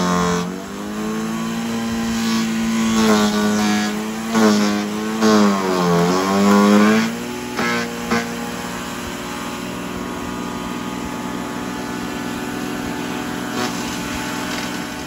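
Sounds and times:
wood chipper motor hum: 0:00.0 - 0:15.0.

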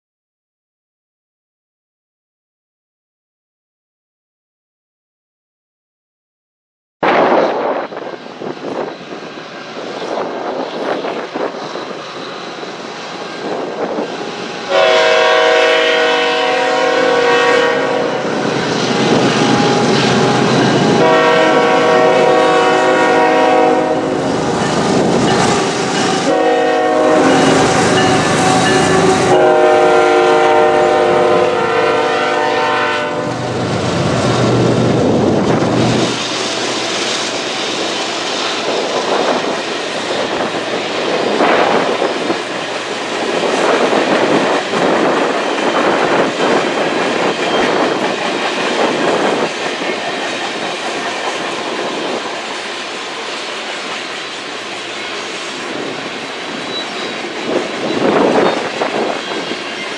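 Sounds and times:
train air horn blasts: 0:13.9 - 0:33.6.

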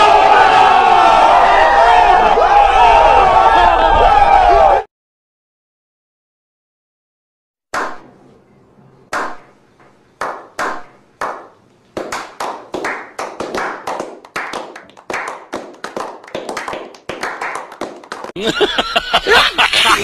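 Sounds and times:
people clapping: 0:10.2 - 0:18.4.

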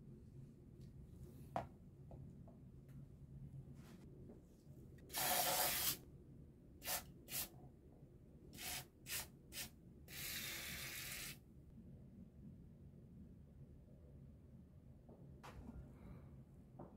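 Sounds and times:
aerosol spray can hissing: 0:05.1 - 0:06.0, 0:06.8 - 0:07.5, 0:08.6 - 0:11.4.

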